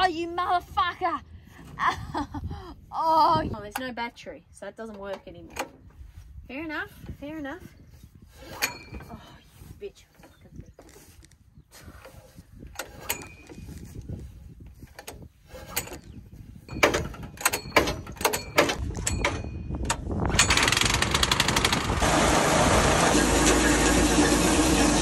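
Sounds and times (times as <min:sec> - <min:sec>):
recoil cord yanks and clatter: 0:06.9 - 0:22.0
small petrol engine running: 0:20.3 - 0:25.0.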